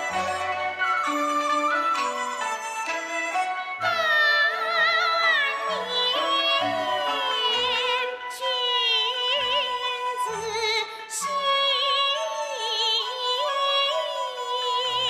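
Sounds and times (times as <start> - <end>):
instrumental accompaniment: 0.0 - 15.0
woman singing opera: 3.6 - 15.0.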